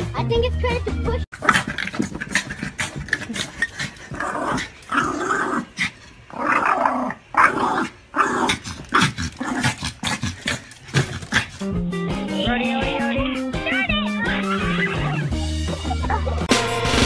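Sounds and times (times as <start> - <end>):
dog growling: 1.4 - 11.8.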